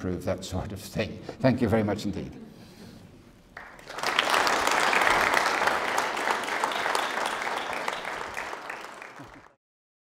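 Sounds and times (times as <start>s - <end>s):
audience applauding: 3.6s - 9.6s.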